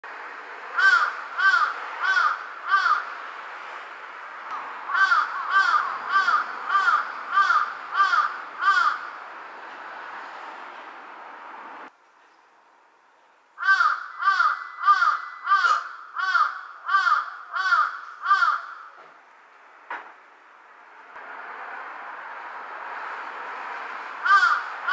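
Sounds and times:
crow cawing: 0.8s - 3.2s, 4.9s - 9.2s, 13.6s - 19.0s, 24.2s - 24.9s.

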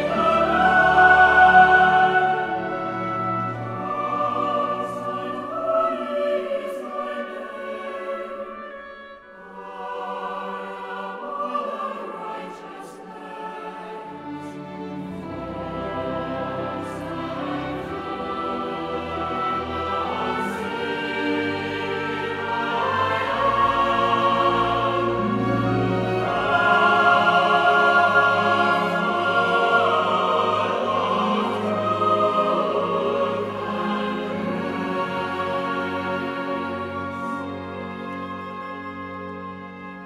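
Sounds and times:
choir singing held chords: 0.0s - 40.0s.

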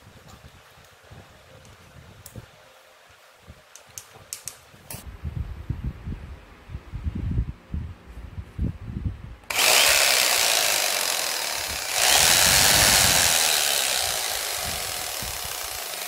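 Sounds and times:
electric jigsaw running: 9.5s - 16.0s.

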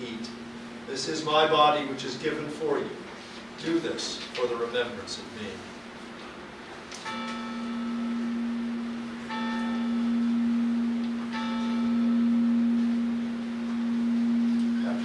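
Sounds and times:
steady low ringing tone: 0.0s - 15.0s
bell strikes ringing: 7.0s - 15.0s.

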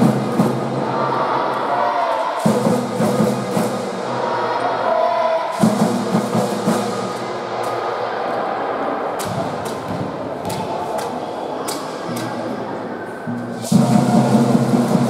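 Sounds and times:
fans chanting: 0.0s - 11.3s.

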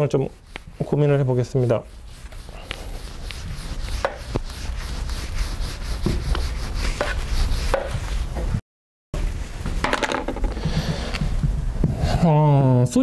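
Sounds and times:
eraser wiping whiteboard: 0.0s - 8.4s.

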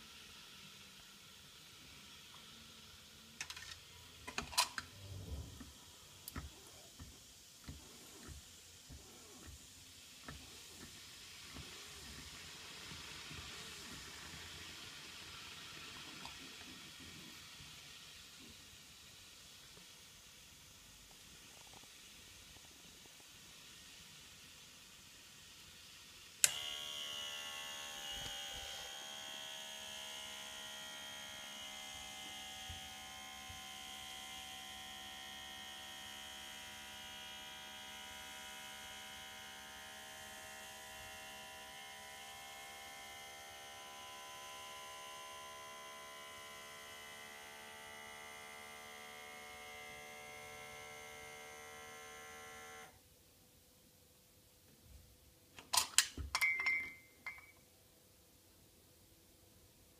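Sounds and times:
espresso machine electrical hum: 0.0s - 17.8s, 26.4s - 53.0s.

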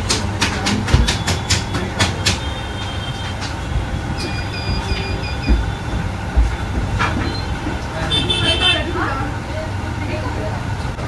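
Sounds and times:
street traffic rumble: 0.0s - 11.0s
short high beeps: 4.2s - 5.9s.

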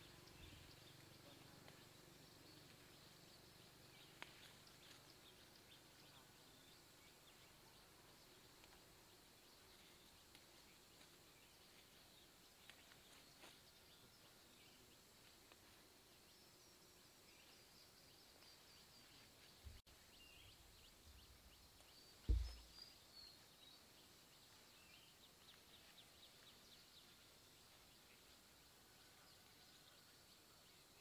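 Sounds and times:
dull low thump: 22.3s - 22.8s.

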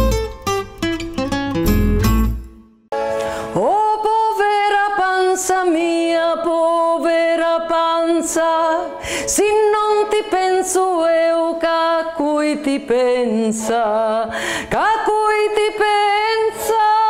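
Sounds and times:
strummed acoustic guitar: 0.0s - 2.8s
woman singing a folk song: 3.5s - 17.0s.

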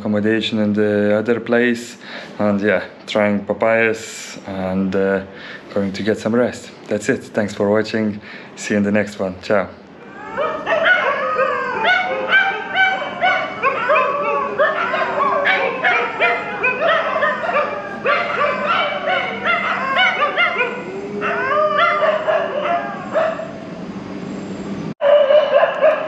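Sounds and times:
dogs howling: 10.0s - 23.8s, 25.0s - 26.0s
dogs barking and yelping: 10.0s - 23.9s, 25.0s - 26.0s.

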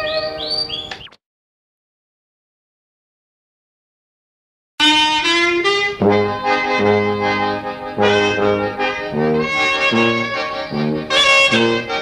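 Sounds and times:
accordion: 4.8s - 12.0s
clarinet melody: 4.8s - 12.0s
tuba bass notes: 4.8s - 12.0s.

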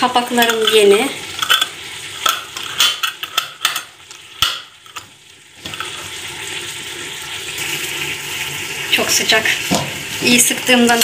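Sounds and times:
metal lid turning on glass jar: 0.2s - 5.0s.

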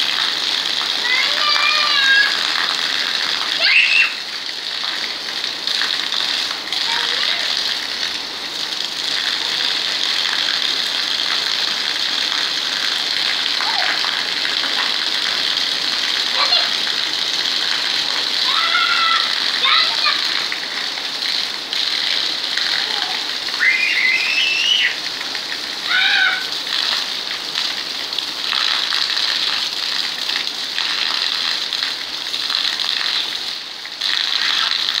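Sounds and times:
heavy rain on concrete: 0.0s - 35.0s
water pouring down: 0.0s - 35.0s
small child squealing: 1.0s - 2.5s, 3.6s - 4.2s, 18.4s - 20.2s, 23.0s - 25.0s, 25.8s - 26.5s.

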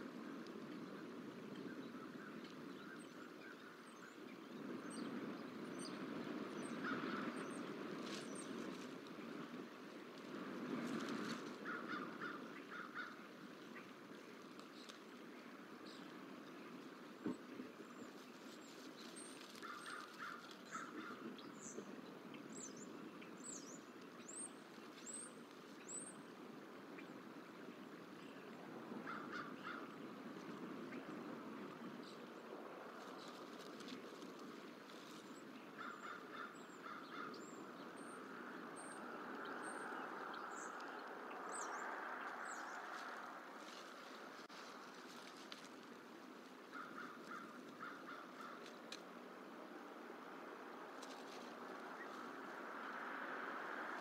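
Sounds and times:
low outdoor rushing noise: 0.0s - 54.0s
crows cawing: 11.6s - 13.2s, 19.6s - 21.2s, 29.0s - 29.9s, 35.8s - 37.4s, 46.7s - 48.7s
faint high chirps and ticks: 33.0s - 49.2s.

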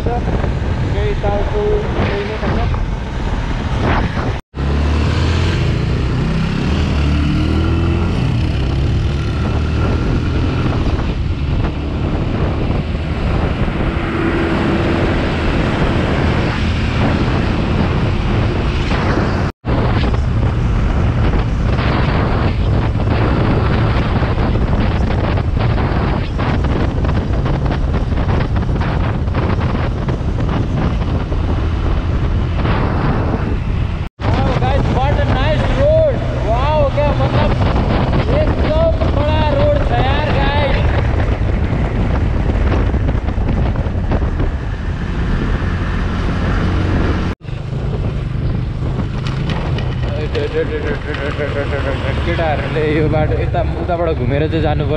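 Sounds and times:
wind on microphone: 0.0s - 54.9s
motorcycle engine running: 39.3s - 53.8s.

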